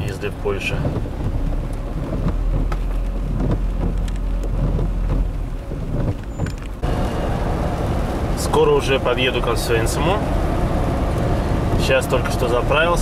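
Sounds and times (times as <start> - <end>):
rain on car windshield and roof: 0.0 - 13.0
steady low rumble: 0.0 - 13.0
steady noise: 6.8 - 13.0.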